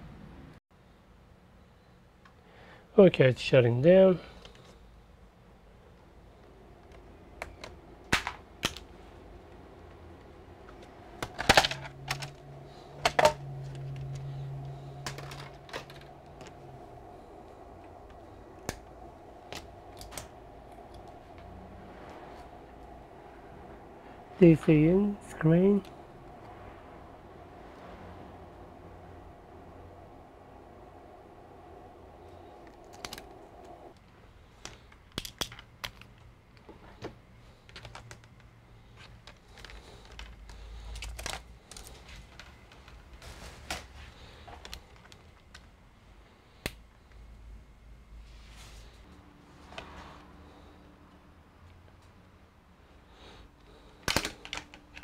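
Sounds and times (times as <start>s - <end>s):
low steady hum: 0.0s - 55.0s
clicks of small plastic parts: 34.0s - 43.0s, 54.0s - 55.0s.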